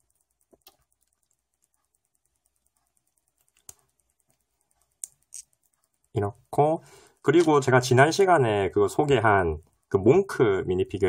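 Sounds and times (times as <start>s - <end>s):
small plastic clicks: 0.0s - 6.2s.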